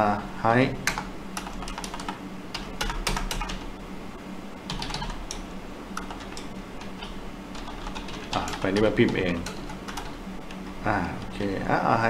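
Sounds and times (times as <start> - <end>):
typing on computer keyboard: 0.8 - 3.6, 4.7 - 10.6.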